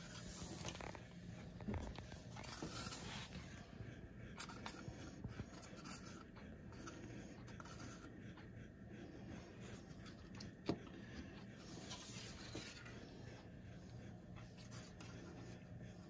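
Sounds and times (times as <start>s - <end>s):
gloved hands rubbing and handling: 0.0s - 3.7s
low room hum: 0.0s - 16.0s.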